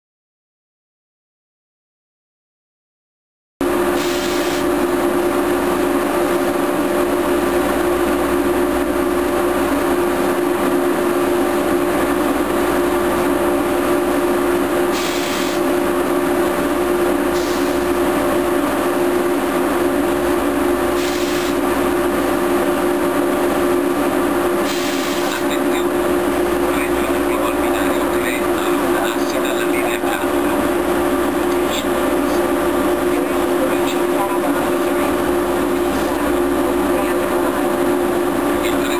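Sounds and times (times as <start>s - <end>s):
train machine hum: 3.6s - 38.9s
air hisses: 4.0s - 4.7s, 14.9s - 15.6s, 17.3s - 17.8s, 21.0s - 21.6s, 24.6s - 25.3s.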